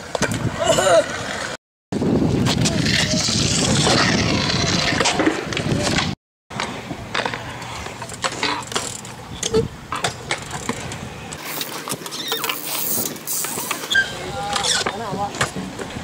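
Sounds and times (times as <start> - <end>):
scooter clicks and knocks on concrete: 0.0 - 0.5, 4.8 - 16.0
wind noise on microphone: 0.0 - 0.9, 1.9 - 7.2, 9.2 - 9.9
scooter wheels rolling on concrete: 0.0 - 16.0.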